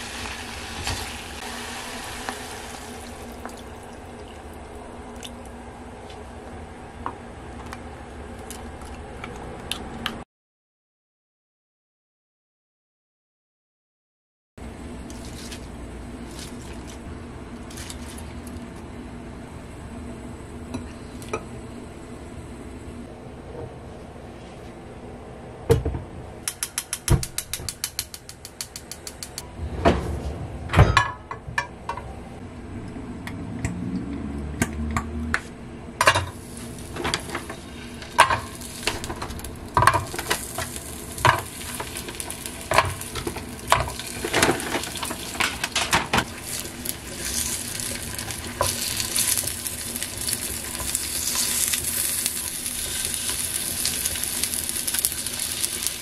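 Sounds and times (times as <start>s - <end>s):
oil sizzling: 0.0s - 5.6s, 36.1s - 56.0s.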